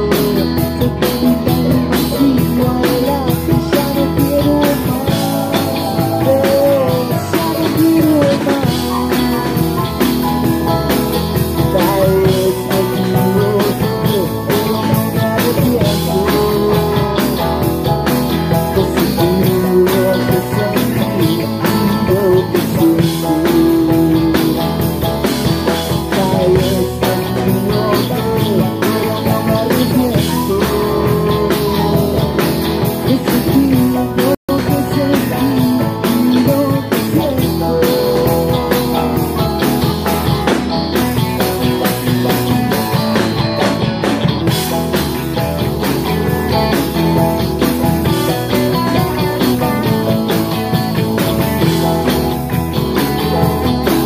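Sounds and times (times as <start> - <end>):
live rock band playing: 0.0 - 54.0
person singing: 0.0 - 54.0.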